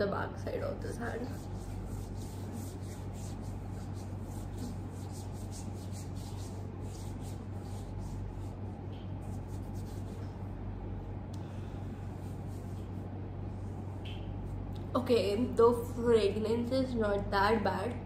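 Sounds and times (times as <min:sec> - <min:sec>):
steady low hum: 0:00.0 - 0:18.0
skin rubbing on skin: 0:00.9 - 0:10.6, 0:12.1 - 0:14.6.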